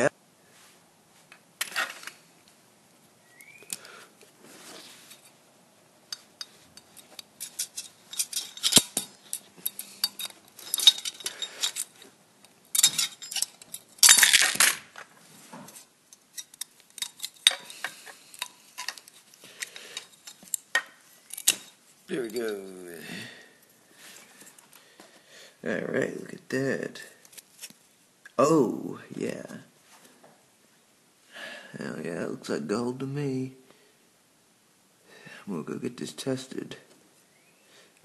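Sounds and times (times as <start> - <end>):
metal-on-metal scraping: 6.1 - 12.1, 12.7 - 14.1
metal tool clicking and clinking: 6.1 - 14.8, 16.1 - 22.6.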